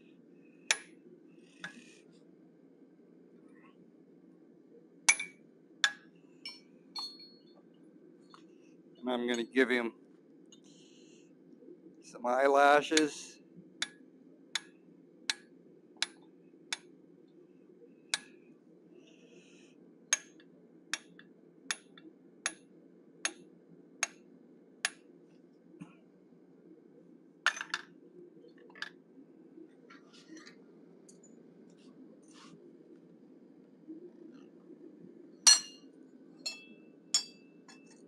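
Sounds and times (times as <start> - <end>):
hammer tapping metal punch: 5.1 - 6.0, 35.5 - 35.8.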